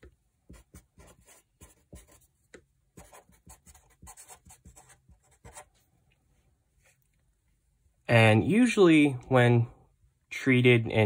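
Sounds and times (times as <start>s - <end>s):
marker scratching on paper: 0.0s - 5.8s.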